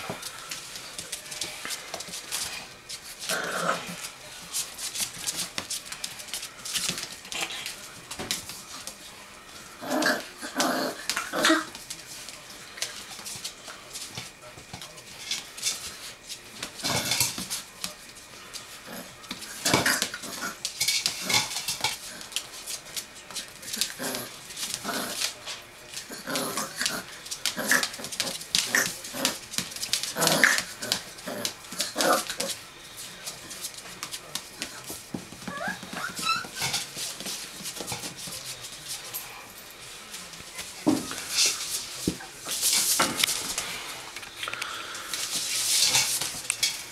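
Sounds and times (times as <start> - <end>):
puppies barking and growling: 30.0 - 32.6, 35.4 - 37.3.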